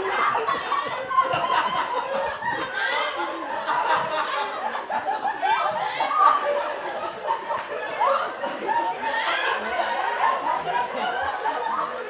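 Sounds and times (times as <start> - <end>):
audience laughing: 0.0 - 12.0.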